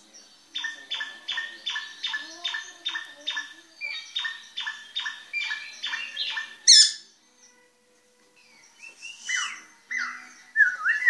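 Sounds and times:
bird singing repeated notes: 0.0s - 7.7s, 8.4s - 11.0s
high sweeping bird call: 8.7s - 11.0s.

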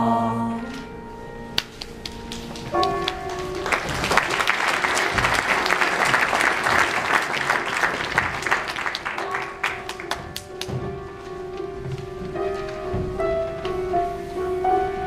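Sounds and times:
audience applauding: 1.6s - 10.8s.

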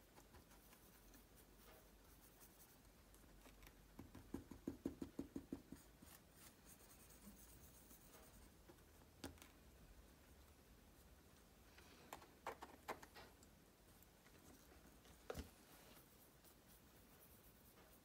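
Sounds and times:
paintbrush dabbing and scraping: 0.0s - 9.1s, 13.9s - 18.0s.

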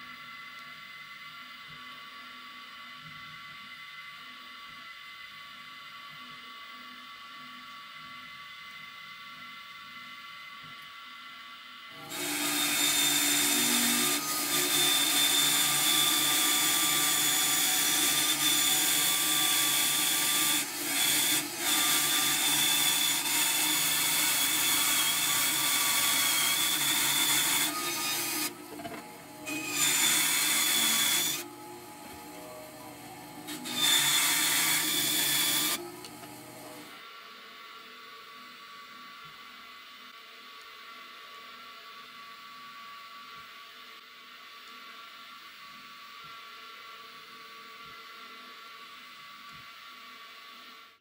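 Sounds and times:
bandsaw whining: 12.0s - 37.0s.

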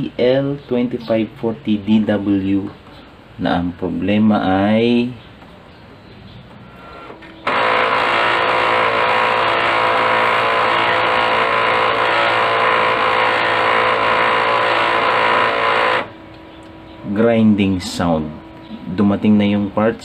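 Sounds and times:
laser printer grinding: 6.7s - 16.2s.

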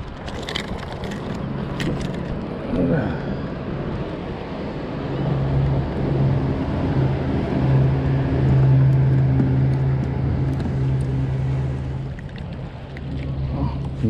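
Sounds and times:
low engine drone: 0.0s - 14.0s
water noise: 0.0s - 14.0s
wind: 0.0s - 14.0s.

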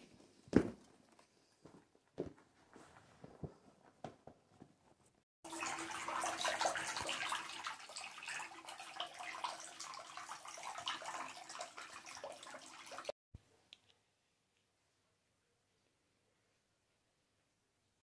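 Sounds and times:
water running into bathtub: 5.4s - 13.2s.

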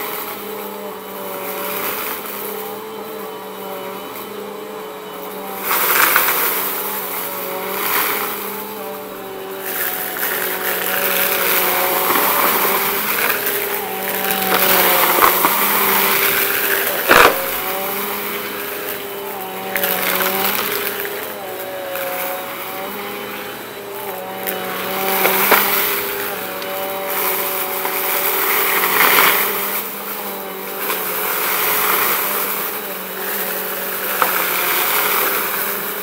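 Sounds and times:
vacuum cleaner running on carpet: 0.0s - 36.0s
debris crunching and rattling: 7.4s - 23.0s.

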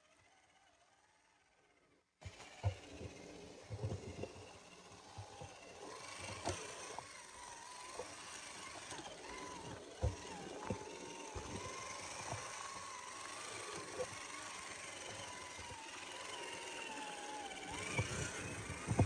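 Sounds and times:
electric motor whining: 2.2s - 19.0s.

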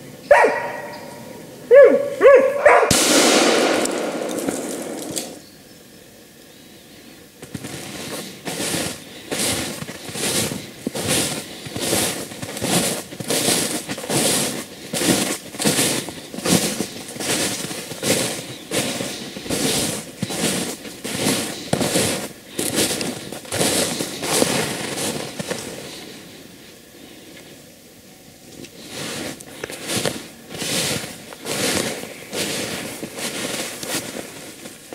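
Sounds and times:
footsteps crunching through snow: 2.8s - 5.4s, 7.4s - 26.4s, 28.6s - 34.9s.

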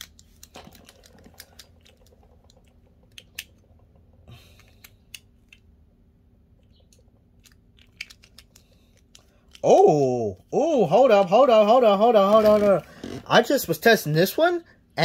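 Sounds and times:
clicks of plastic toy parts: 0.0s - 5.7s, 6.6s - 9.7s.

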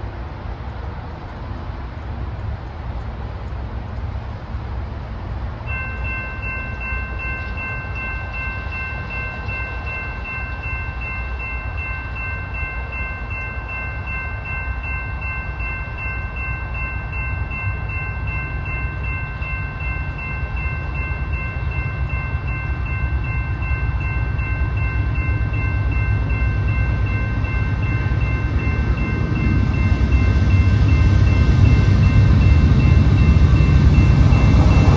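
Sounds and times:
diesel locomotive rumble: 0.0s - 34.9s
crossing warning bell ringing: 5.6s - 34.9s.

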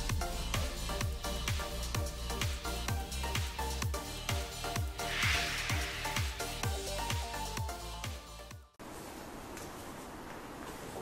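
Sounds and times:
hiss: 4.9s - 7.4s.

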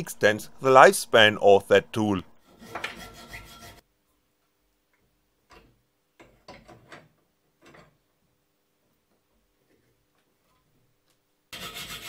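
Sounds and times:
hand file strokes on metal: 2.4s - 3.8s, 11.5s - 12.0s
hacksaw cutting steel tube: 2.5s - 3.8s, 11.5s - 12.0s.

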